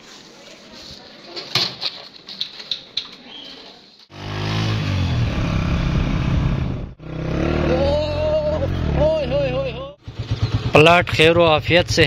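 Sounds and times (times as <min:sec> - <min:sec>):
motorcycle engine running: 0:04.1 - 0:12.0.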